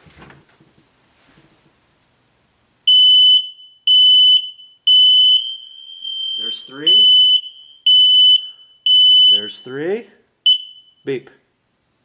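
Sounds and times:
smoke alarm beeps: 2.9s - 9.8s, 10.4s - 11.1s
faint steady alarm tone: 2.9s - 11.2s.

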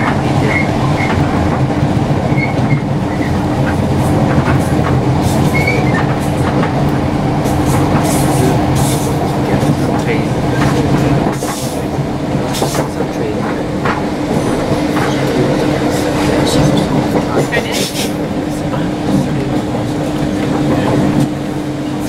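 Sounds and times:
train rumble and hum: 0.0s - 22.0s
wheels squeaking: 2.3s - 3.4s, 5.3s - 6.2s.

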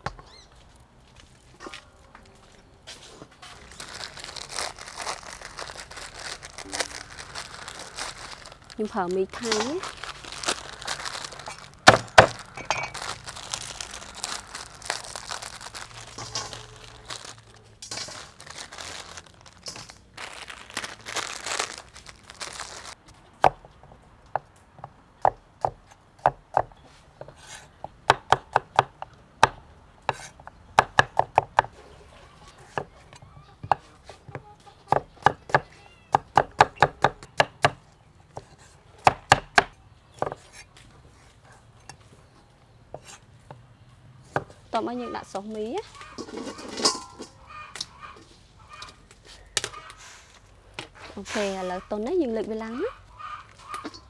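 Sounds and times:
plastic foil packets crinkling: 3.4s - 23.0s, 45.2s - 47.9s, 52.6s - 54.0s.

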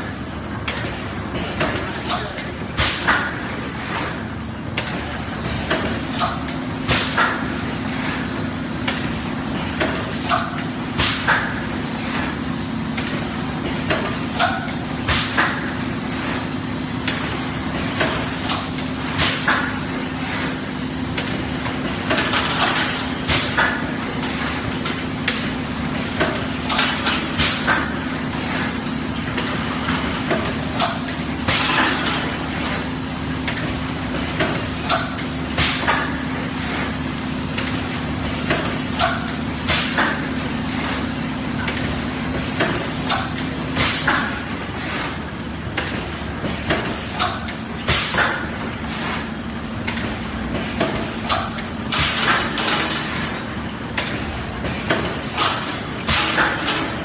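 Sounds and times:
machine clunks: 49.8s - 53.2s.

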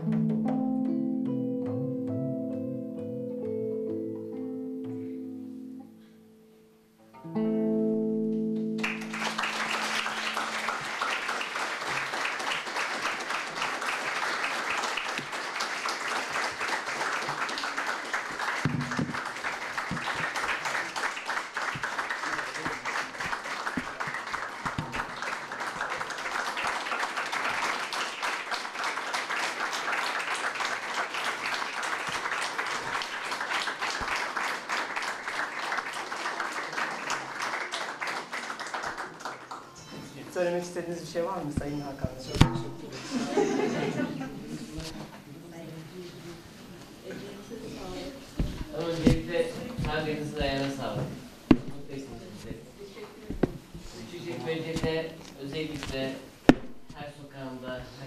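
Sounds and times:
plucked zither playing: 0.0s - 8.8s, 42.4s - 43.0s
audience applause: 8.8s - 39.9s.

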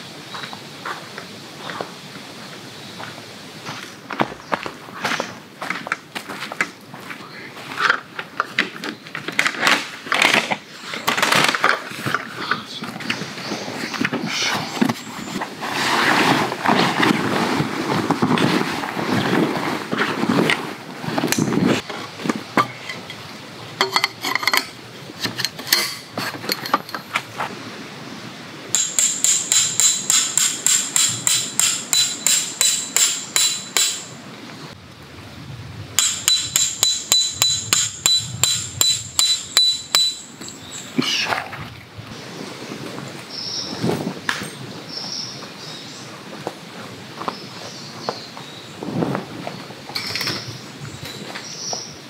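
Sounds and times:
canvas tarp rustling and flapping: 14.5s - 22.5s, 48.7s - 49.9s
hammer striking metal tent peg: 28.7s - 34.1s, 36.0s - 40.3s.

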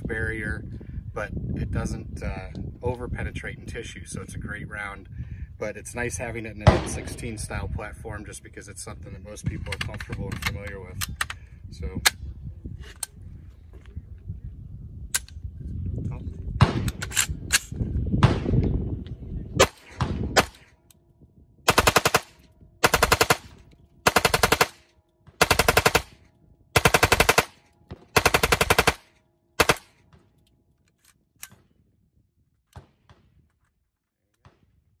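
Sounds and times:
rifle firing automatic bursts: 21.7s - 24.8s, 25.4s - 26.2s, 26.8s - 27.6s, 28.2s - 29.0s, 29.6s - 29.9s.

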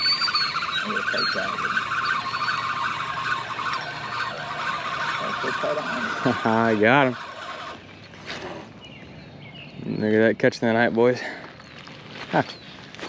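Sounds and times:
insects chirring: 0.0s - 8.2s.

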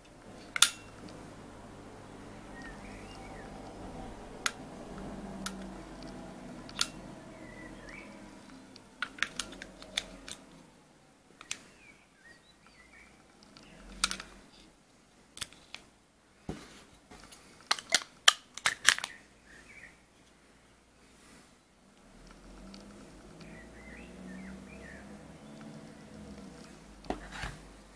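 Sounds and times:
battery clicking into metal box: 17.7s - 19.2s.

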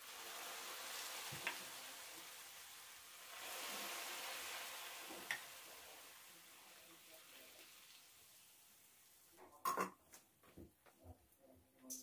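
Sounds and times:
pastry sizzling in syrup: 0.0s - 9.3s.

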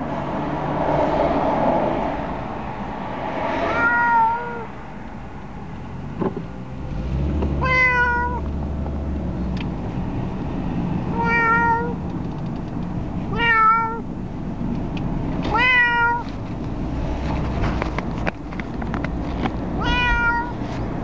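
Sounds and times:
low car rumble: 0.0s - 21.0s
cat meowing: 3.7s - 4.7s, 7.6s - 8.4s, 11.1s - 12.0s, 13.3s - 14.0s, 15.5s - 16.3s, 19.8s - 20.6s.

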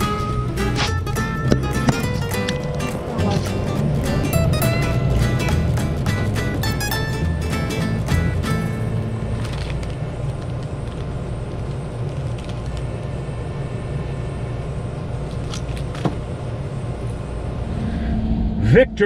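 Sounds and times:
low rumble: 17.1s - 19.0s.

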